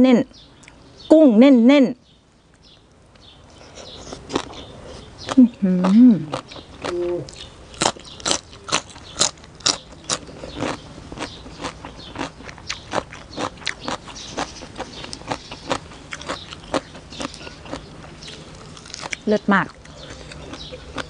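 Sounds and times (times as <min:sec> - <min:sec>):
crunching raw vegetables: 0:03.6 - 0:21.0.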